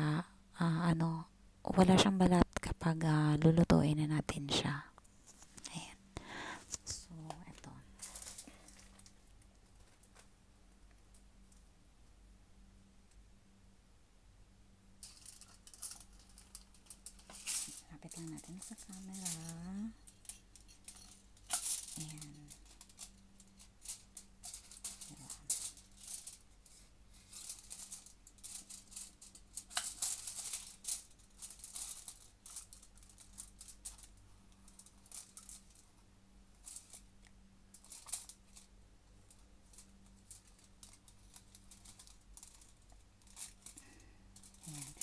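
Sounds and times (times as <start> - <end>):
faint steady hum: 0.0 - 45.0
aluminium foil crinkling: 5.2 - 10.3, 15.0 - 35.9, 36.6 - 45.0.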